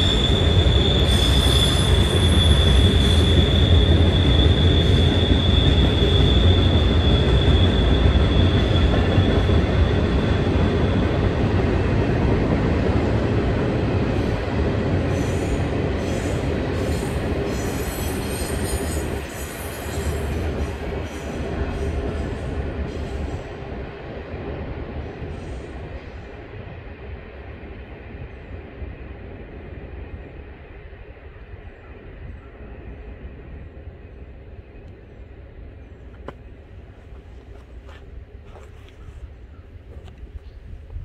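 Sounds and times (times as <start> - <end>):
high wheel squeal: 0.0 - 11.2
train wheels rumbling on rail: 0.0 - 41.0.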